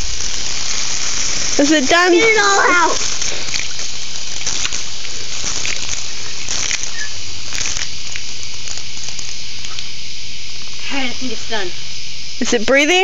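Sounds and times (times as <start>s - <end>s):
water splattering on concrete: 0.0s - 9.4s.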